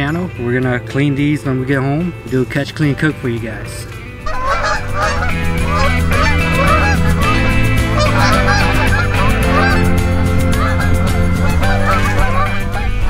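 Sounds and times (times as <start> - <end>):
geese honking: 4.2 - 13.0.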